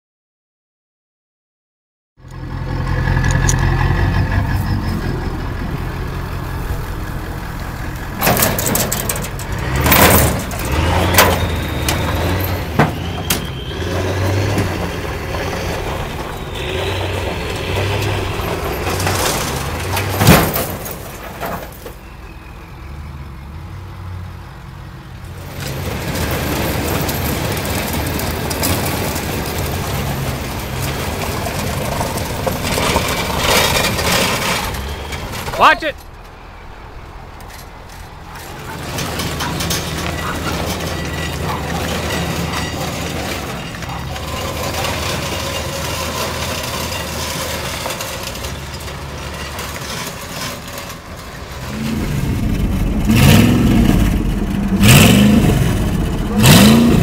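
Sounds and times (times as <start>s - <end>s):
pickup truck engine running: 2.2s - 21.3s, 25.3s - 57.0s
loose body metal clanking: 3.2s - 13.7s, 37.3s - 57.0s
short high squeals: 10.6s - 19.7s.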